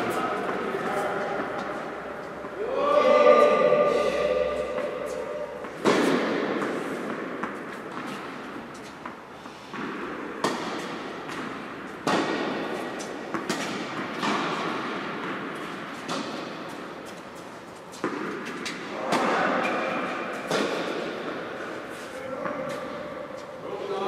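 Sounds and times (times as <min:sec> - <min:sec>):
rackets striking tennis ball: 0:00.0 - 0:24.0
tennis ball bouncing on court: 0:04.6 - 0:21.6.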